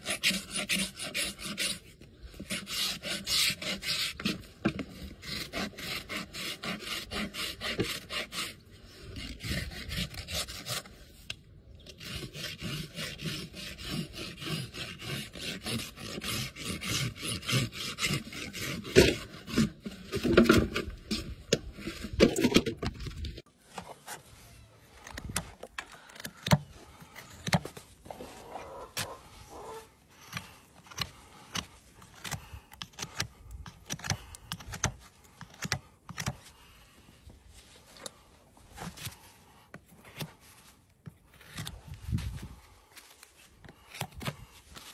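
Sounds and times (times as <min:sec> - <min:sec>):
hoof rasp filing: 0:00.0 - 0:11.2, 0:11.8 - 0:22.4.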